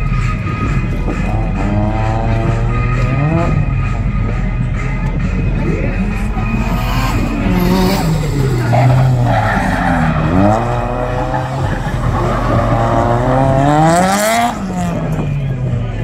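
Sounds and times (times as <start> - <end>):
car engine revving: 0.0 - 16.0
tyres screeching: 6.6 - 13.9.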